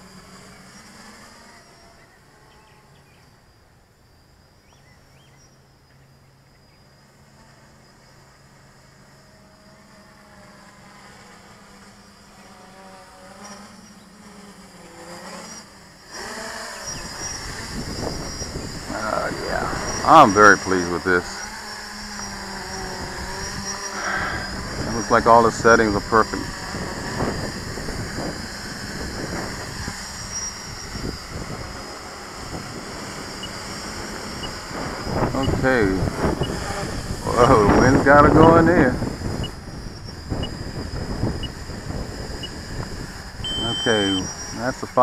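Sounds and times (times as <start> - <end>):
drone motors humming: 0.0 - 45.0
quadcopter propellers buzzing: 0.0 - 45.0
wind buffeting microphone: 16.9 - 21.6, 22.3 - 45.0.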